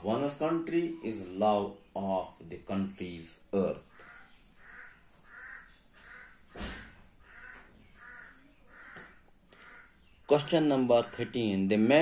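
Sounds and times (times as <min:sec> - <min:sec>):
crow cawing: 0:03.9 - 0:10.1.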